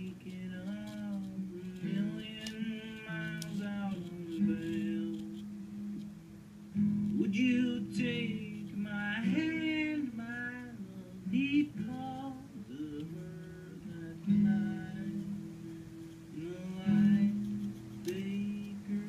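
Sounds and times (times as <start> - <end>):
guitar chords: 0.0 - 19.0.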